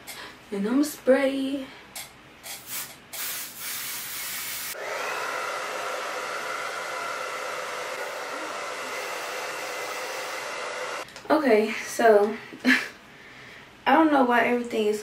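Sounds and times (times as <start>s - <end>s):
aerosol hair spray hissing: 2.4s - 4.8s
hair dryer blowing with a whine: 4.7s - 11.1s.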